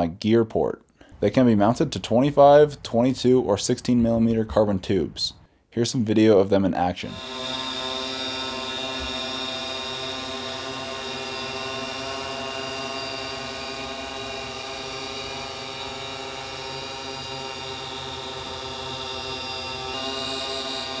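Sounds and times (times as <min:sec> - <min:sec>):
drone propellers whining: 0:07.1 - 0:21.0.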